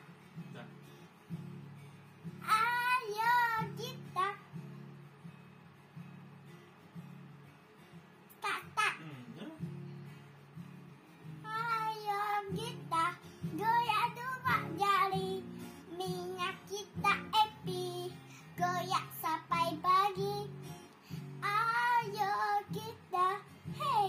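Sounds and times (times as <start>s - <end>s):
acoustic guitar strumming chords: 0.0s - 24.0s
girl singing: 2.4s - 4.6s, 8.4s - 9.1s, 11.4s - 24.0s.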